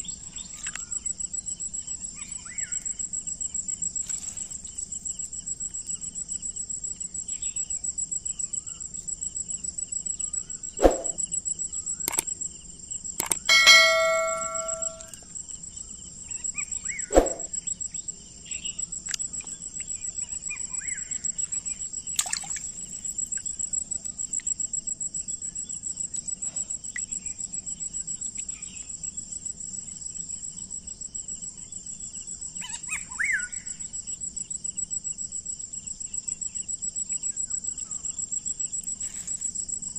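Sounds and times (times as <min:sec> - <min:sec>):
insects chirring: 0:00.0 - 0:39.9
brief ringing tone: 0:13.5 - 0:15.1
sharp knocks: 0:13.5 - 0:15.1.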